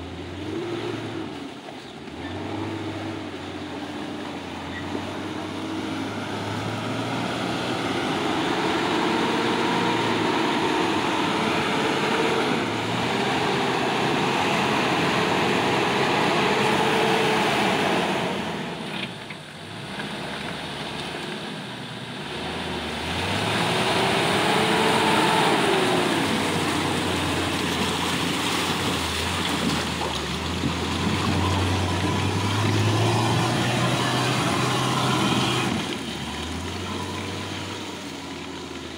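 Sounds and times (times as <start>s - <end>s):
engine revving under load: 0.0s - 38.9s.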